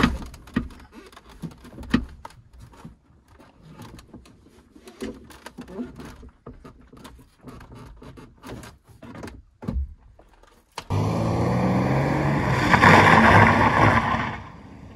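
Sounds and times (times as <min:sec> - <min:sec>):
car engine running loudly: 0:10.9 - 0:14.9
rush of noise: 0:10.9 - 0:14.9.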